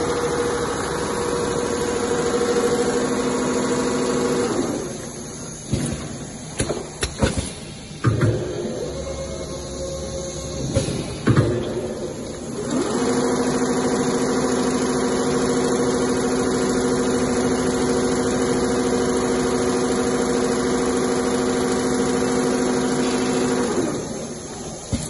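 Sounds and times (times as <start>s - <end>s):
sewing machine running: 0.0s - 5.0s, 12.4s - 24.5s.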